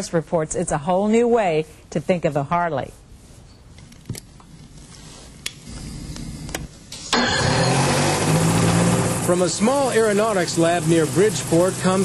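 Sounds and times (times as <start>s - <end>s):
engine starter clicks: 7.0s - 8.9s
starter whir: 7.0s - 12.0s
engine running loud and steady: 7.2s - 12.0s.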